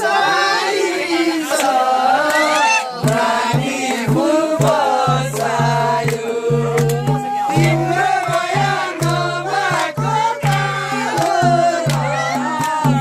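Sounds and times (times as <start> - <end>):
men singing folk song: 0.0 - 13.0
hand drum low beats: 3.0 - 13.0.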